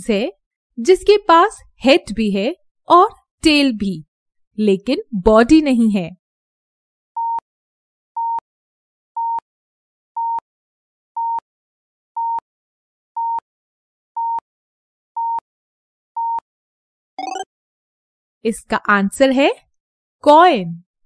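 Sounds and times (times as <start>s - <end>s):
countdown timer beeping: 17.2s - 17.4s.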